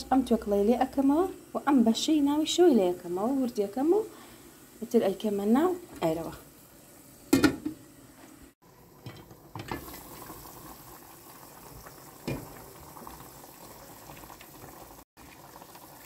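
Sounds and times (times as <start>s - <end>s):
soup boiling and bubbling: 7.9s - 16.0s.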